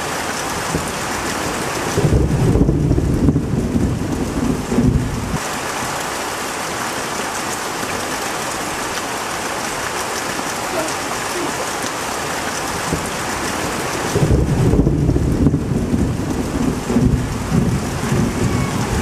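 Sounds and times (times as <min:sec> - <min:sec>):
rain falling on leaves: 0:00.0 - 0:19.0
thunder rolling: 0:00.6 - 0:05.4, 0:12.7 - 0:19.0.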